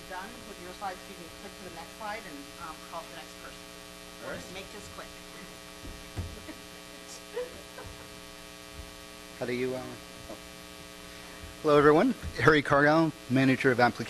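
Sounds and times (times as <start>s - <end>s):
electrical mains hum: 0.0s - 14.0s
faint knocks: 5.8s - 6.7s, 11.4s - 12.8s.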